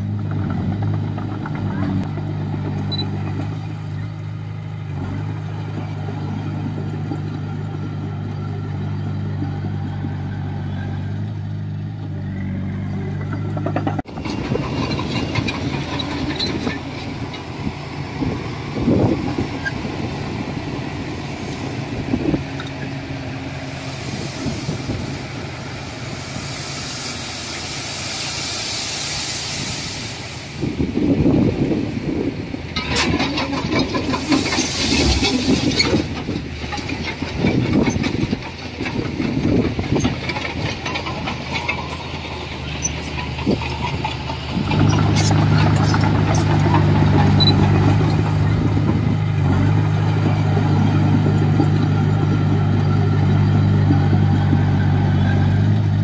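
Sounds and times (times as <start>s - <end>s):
bulldozer diesel engine running: 0.0s - 56.0s
hiss: 23.6s - 30.9s, 34.1s - 35.8s
metal clanking: 32.7s - 48.4s.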